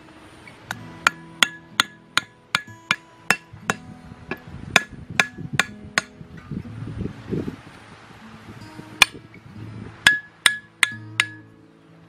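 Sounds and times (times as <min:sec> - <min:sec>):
machete tapping bamboo stake: 0:00.7 - 0:06.2, 0:10.0 - 0:11.5.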